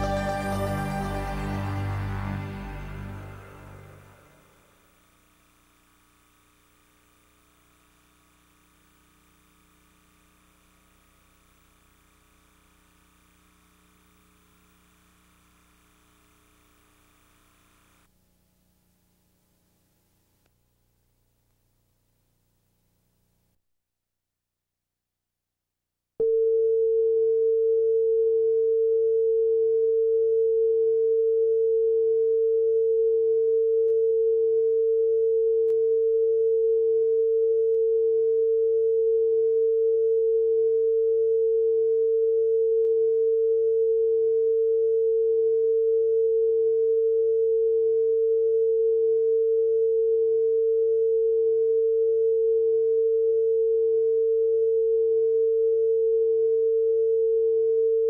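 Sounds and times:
steady pure reference tone: 0:00.0 - 0:05.1.

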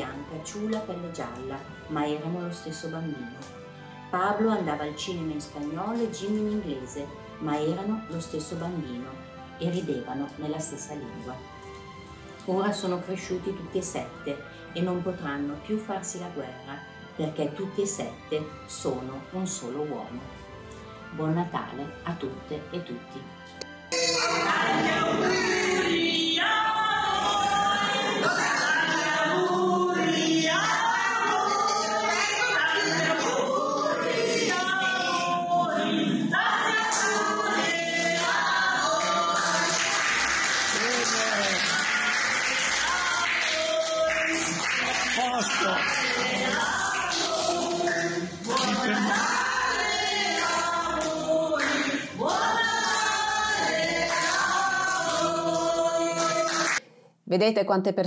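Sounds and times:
group singing choir-like: 0:23.9 - 0:56.8
people clapping along: 0:36.4 - 0:56.8.

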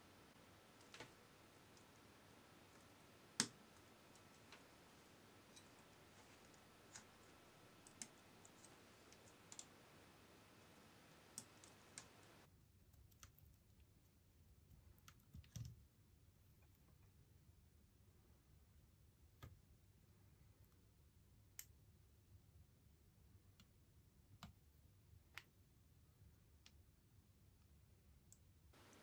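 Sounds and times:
small plastic clicks: 0:05.5 - 0:09.8.

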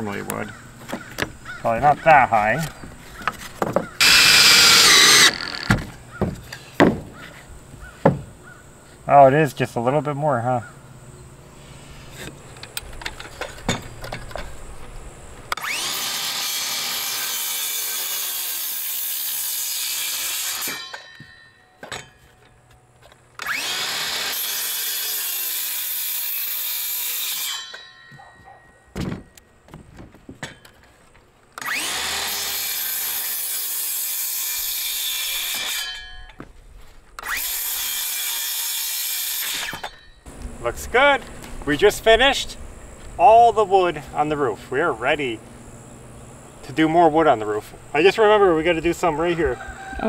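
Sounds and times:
knocks of wood: 0:02.6 - 0:04.1, 0:05.5 - 0:07.4, 0:08.0 - 0:08.3, 0:28.9 - 0:30.6
circular saw cutting wood: 0:04.0 - 0:05.9, 0:15.5 - 0:21.5, 0:23.4 - 0:28.0, 0:31.6 - 0:36.2, 0:37.2 - 0:40.1
saw blade whine: 0:04.0 - 0:05.9, 0:15.5 - 0:22.6, 0:23.4 - 0:28.4, 0:31.6 - 0:36.4, 0:37.2 - 0:49.6.

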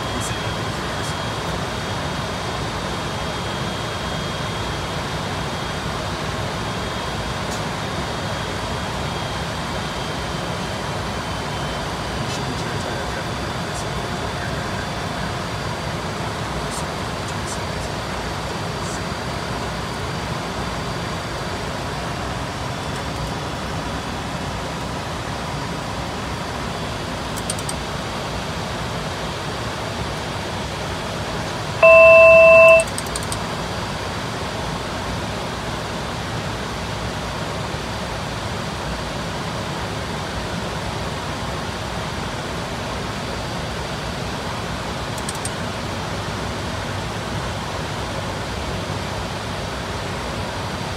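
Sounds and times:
electronic cockpit alert tone: 0:31.8 - 0:33.2.

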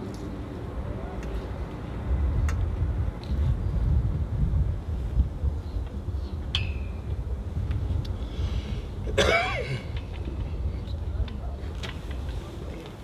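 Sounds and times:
wind rumbling on microphone: 0:00.0 - 0:13.0
person coughing: 0:09.1 - 0:09.9.

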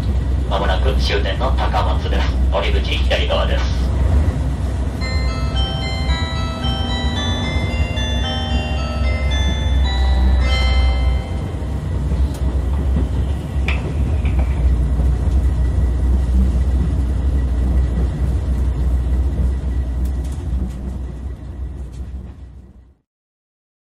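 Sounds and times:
train running low rumble: 0:00.0 - 0:23.0.

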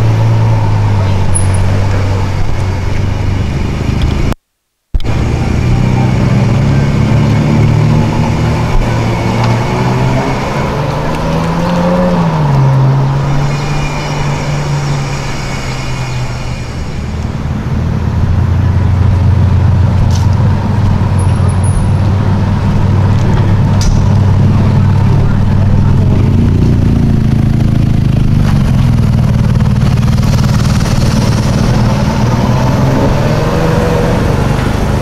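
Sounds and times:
car engine pulling away and revving: 0:00.0 - 0:04.4, 0:05.0 - 0:35.0.

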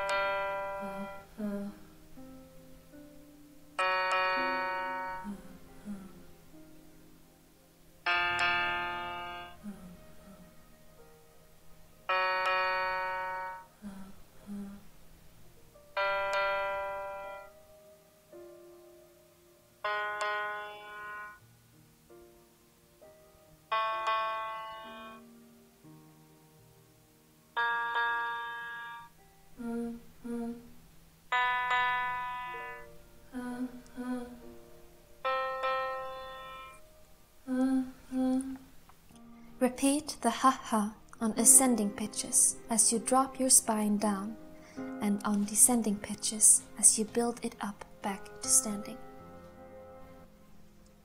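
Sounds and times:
piano notes: 0:00.0 - 0:51.0
person vocalizing ha: 0:00.8 - 0:01.8, 0:04.4 - 0:06.2, 0:09.5 - 0:10.6, 0:13.8 - 0:14.9.

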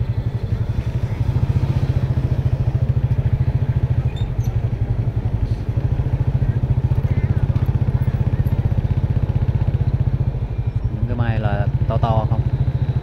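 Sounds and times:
motorbike engine puttering: 0:00.2 - 0:12.9.

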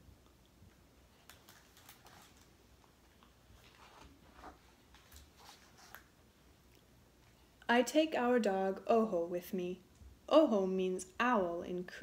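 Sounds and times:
book page turning: 0:01.2 - 0:02.6, 0:03.6 - 0:06.1.

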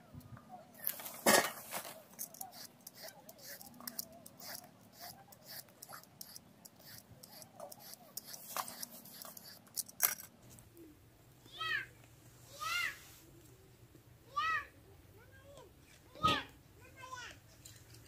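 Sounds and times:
knife scraping vegetable skin: 0:00.8 - 0:10.3.

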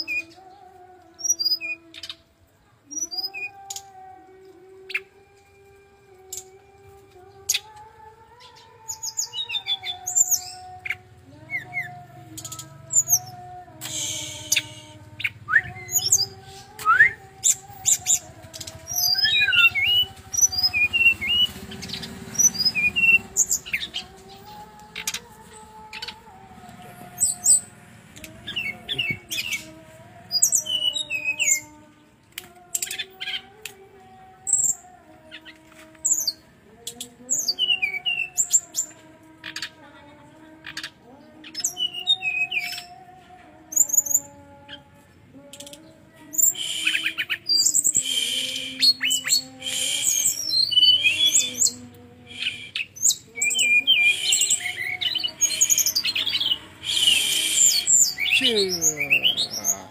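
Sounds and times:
bird chirping and twittering: 0:08.3 - 0:31.8, 0:45.4 - 0:59.9.

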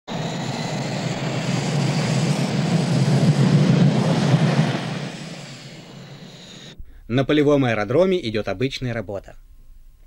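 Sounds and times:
jet engines roaring with high whine: 0:00.1 - 0:06.8.

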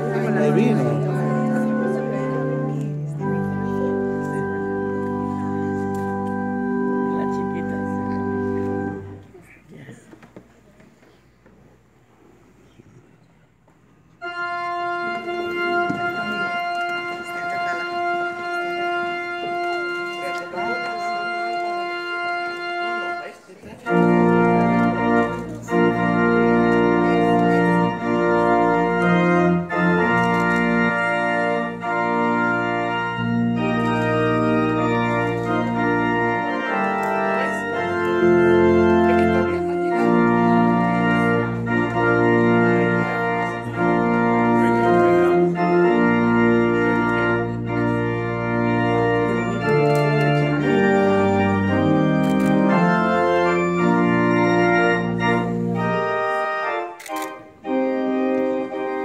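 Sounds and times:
church organ chords: 0:00.0 - 0:09.5, 0:14.1 - 0:59.0.

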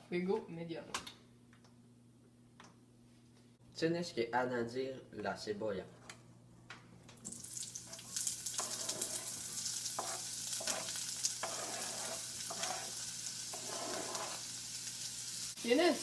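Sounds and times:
onion sizzling in oil: 0:07.2 - 0:16.0
knife scraping cutting board: 0:08.6 - 0:14.5.

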